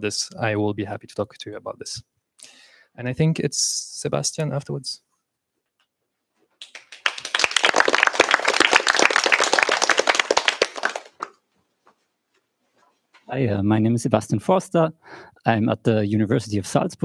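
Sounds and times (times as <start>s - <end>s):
audience applauding: 6.6s - 11.4s.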